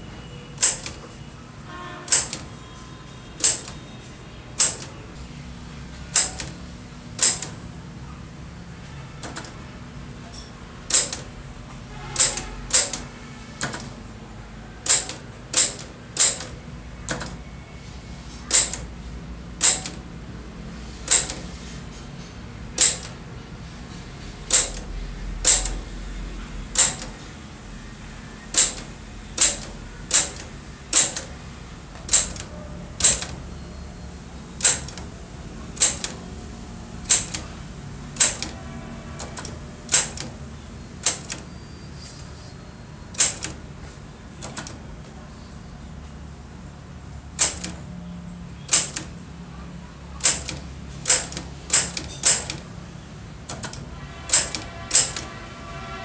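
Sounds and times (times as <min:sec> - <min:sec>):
typewriter key strikes: 0:00.6 - 0:01.0, 0:02.1 - 0:02.5, 0:03.4 - 0:03.8, 0:04.6 - 0:05.0, 0:06.1 - 0:06.6, 0:07.2 - 0:07.6, 0:09.2 - 0:09.6, 0:10.9 - 0:11.3, 0:12.2 - 0:14.0, 0:14.8 - 0:17.4, 0:18.5 - 0:18.9, 0:19.6 - 0:20.0, 0:21.1 - 0:21.5, 0:22.7 - 0:23.2, 0:24.5 - 0:25.9, 0:26.7 - 0:27.2, 0:28.5 - 0:31.4, 0:32.0 - 0:33.4, 0:34.6 - 0:35.1, 0:35.8 - 0:36.2, 0:37.0 - 0:37.5, 0:38.2 - 0:38.6, 0:39.2 - 0:40.4, 0:41.0 - 0:41.5, 0:43.1 - 0:43.6, 0:44.3 - 0:44.8, 0:47.3 - 0:47.8, 0:48.7 - 0:49.2, 0:50.2 - 0:52.7, 0:53.4 - 0:55.3.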